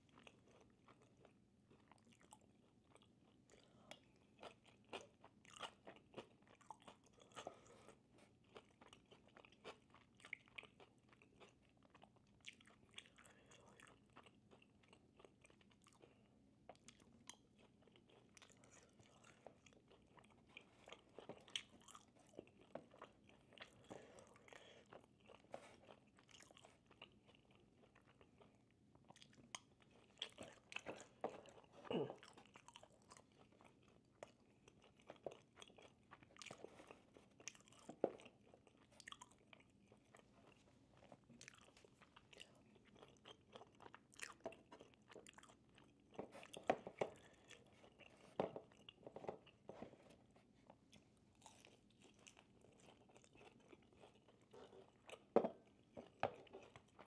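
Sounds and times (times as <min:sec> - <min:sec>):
chewing and biting food: 0:00.0 - 0:57.0.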